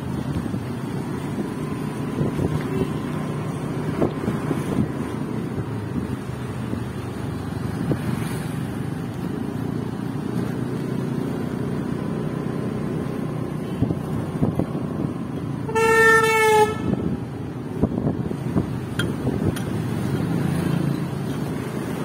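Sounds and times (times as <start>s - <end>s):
engine and road noise: 0.0s - 22.0s
vehicle horn honking: 15.7s - 17.2s.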